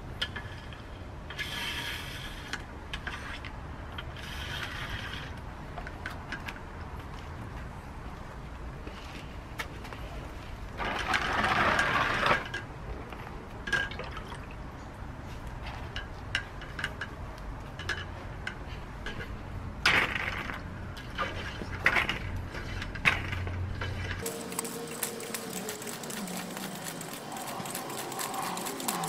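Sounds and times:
water sloshing and running off: 13.7s - 14.6s.

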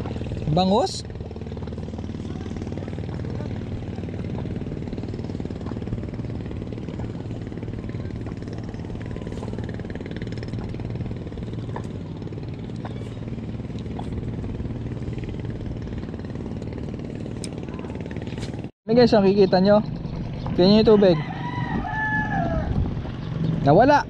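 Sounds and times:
engine idling: 0.0s - 21.8s.

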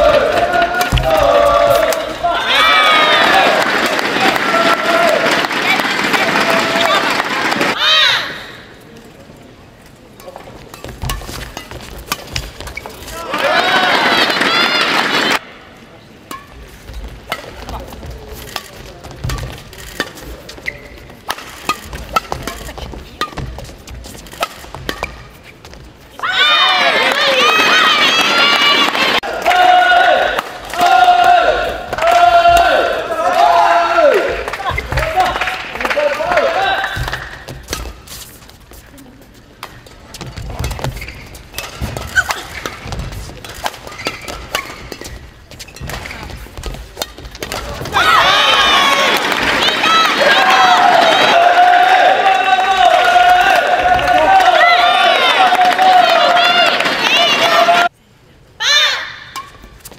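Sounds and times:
shoes squeaking on floor: 10.6s - 13.1s, 19.2s - 26.0s, 37.0s - 47.8s
rackets striking shuttlecock: 17.3s - 23.7s, 39.6s - 48.0s.

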